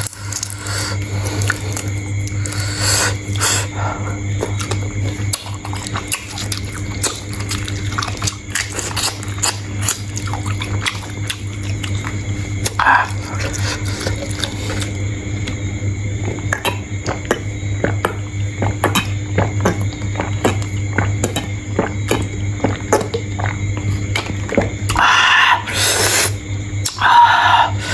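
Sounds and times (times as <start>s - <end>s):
steady low hum: 0.0s - 27.9s.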